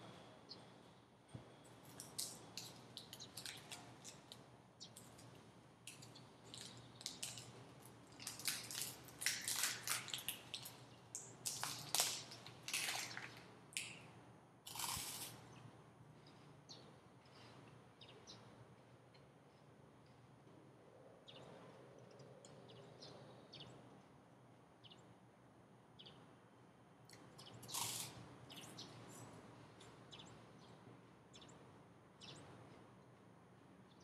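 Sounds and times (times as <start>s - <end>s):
plastic wrapper crinkling and tearing: 8.1s - 10.8s, 11.4s - 13.4s.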